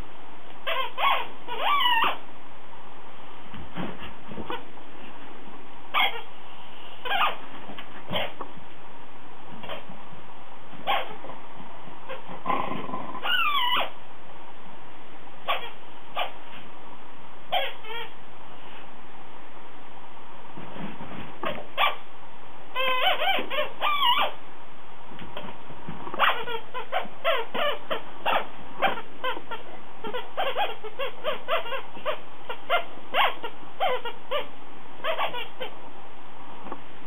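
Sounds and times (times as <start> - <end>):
squeaky toy squeaking: 0.6 - 2.2, 5.9 - 6.3, 7.0 - 7.4, 8.1 - 8.4, 9.6 - 9.9, 10.8 - 11.2, 12.1 - 12.3, 13.2 - 14.0, 15.4 - 16.4, 17.5 - 18.2, 21.4 - 22.0, 22.7 - 24.4, 26.2 - 35.8.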